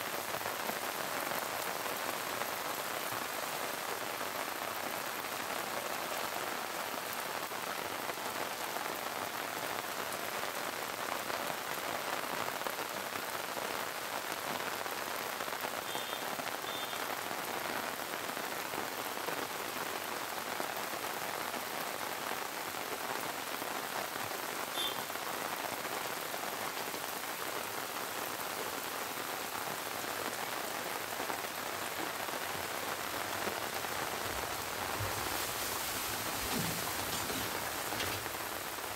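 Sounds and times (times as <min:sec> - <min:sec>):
steady rain on ground: 0:00.0 - 0:38.9
running water: 0:31.8 - 0:38.9.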